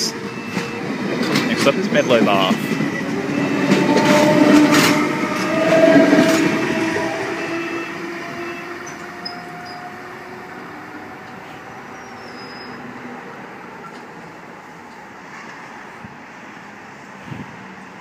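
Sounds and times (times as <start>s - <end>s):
train motor whine: 2.4s - 13.2s.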